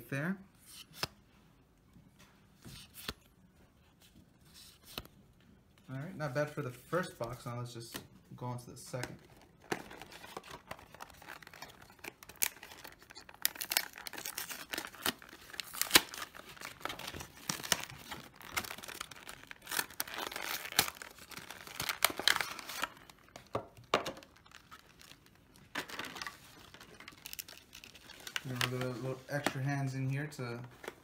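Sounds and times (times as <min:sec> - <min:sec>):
cardboard tearing: 0:09.8 - 0:23.0.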